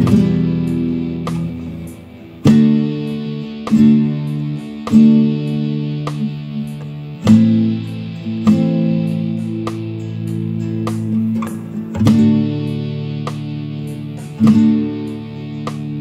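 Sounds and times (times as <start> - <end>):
acoustic guitar chords strummed: 0.0 - 16.0.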